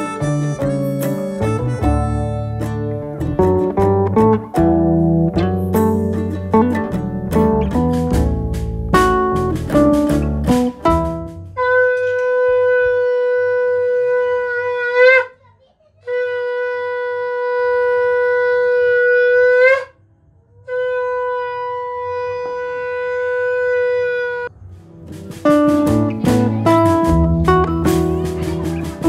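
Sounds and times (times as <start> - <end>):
conch shell blown: 11.5 - 15.4, 16.1 - 24.7.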